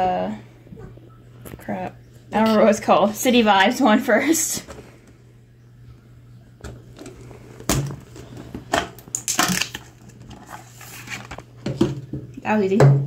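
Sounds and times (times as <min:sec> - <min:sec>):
plastic packaging crackling: 0:06.9 - 0:11.7.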